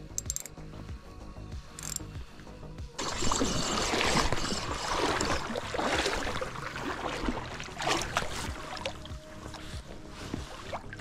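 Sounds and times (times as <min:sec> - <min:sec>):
river water splashing: 0:03.0 - 0:11.0.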